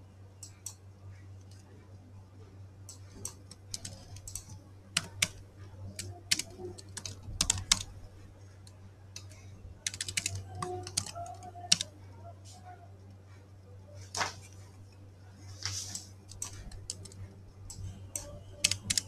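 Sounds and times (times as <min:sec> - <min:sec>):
typing on computer keyboard: 0:02.9 - 0:08.0, 0:09.2 - 0:11.9, 0:16.3 - 0:19.0.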